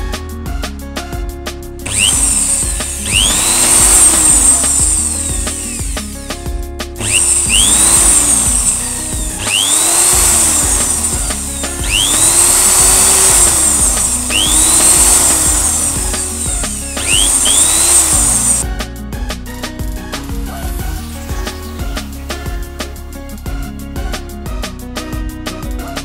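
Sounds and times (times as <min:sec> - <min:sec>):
background music: 0:00.0 - 0:26.0
electric drill boring plastic: 0:01.9 - 0:06.2, 0:07.0 - 0:18.6.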